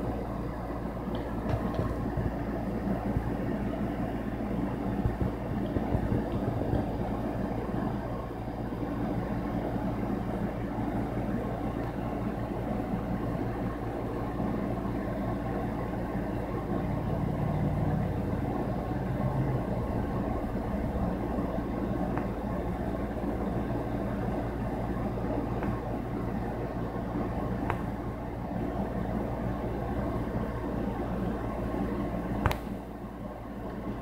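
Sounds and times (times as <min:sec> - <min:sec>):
droning hum: 0:00.0 - 0:34.0
low engine rumble: 0:16.3 - 0:31.5.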